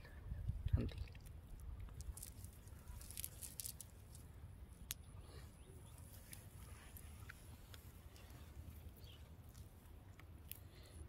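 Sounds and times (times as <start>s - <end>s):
wet net rustling and clicking: 1.2s - 4.2s.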